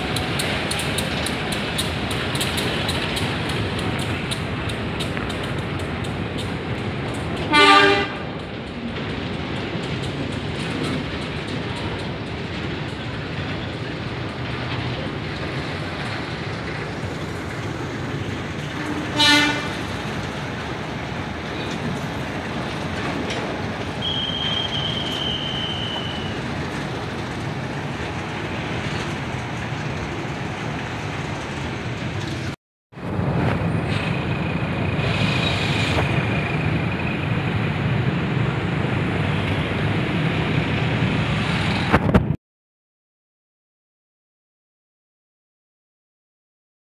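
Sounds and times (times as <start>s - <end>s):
freight train rumbling past: 0.0s - 42.4s
train horn honk: 7.5s - 8.3s, 18.7s - 19.8s.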